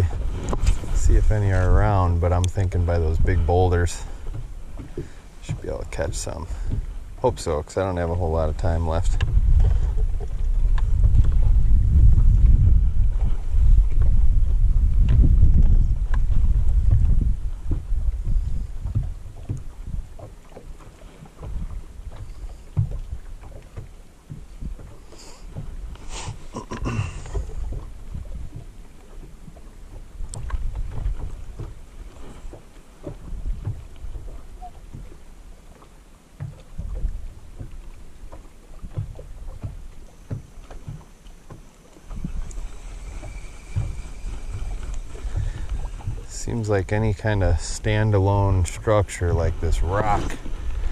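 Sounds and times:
wind buffeting microphone: 0.0s - 35.8s, 36.4s - 50.9s
waves lapping against boat hull: 0.0s - 50.9s.

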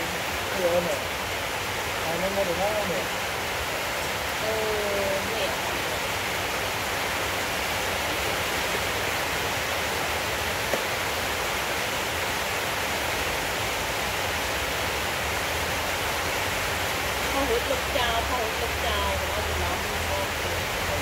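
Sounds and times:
steady background hiss: 0.0s - 21.0s.

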